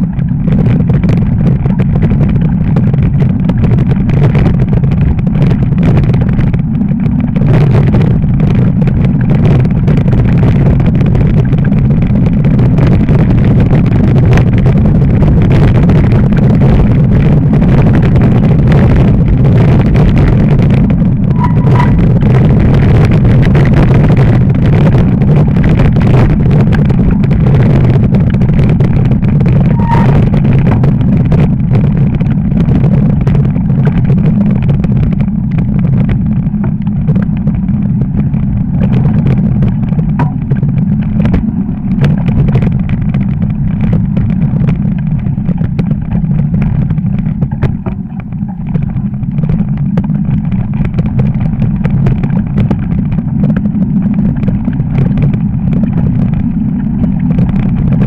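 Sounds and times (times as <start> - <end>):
fat tyres on snow: 0.0 - 58.0
wind rushing over microphone: 0.0 - 58.0
bike clicks and knocks: 15.8 - 58.0.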